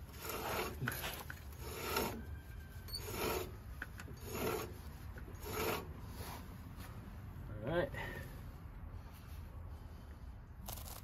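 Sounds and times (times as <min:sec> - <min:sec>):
rasping rub of axle turning: 0:00.0 - 0:07.0.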